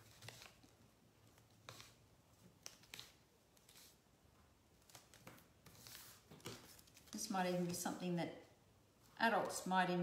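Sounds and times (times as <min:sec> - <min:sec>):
paper rustling and creasing: 0:00.0 - 0:04.0, 0:04.8 - 0:07.8.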